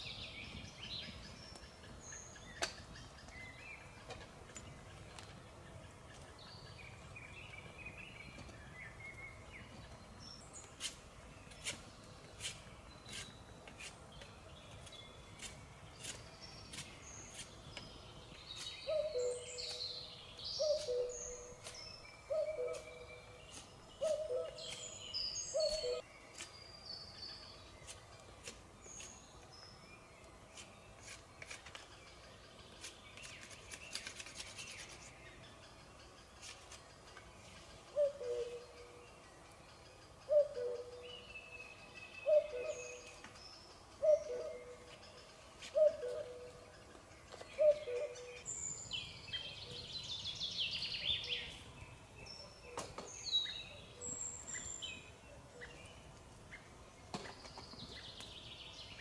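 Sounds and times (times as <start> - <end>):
songbirds chirping: 0.0 - 59.0
cuckoo calling: 18.8 - 26.0, 37.8 - 39.0, 40.2 - 43.4, 44.0 - 45.1, 45.7 - 48.6.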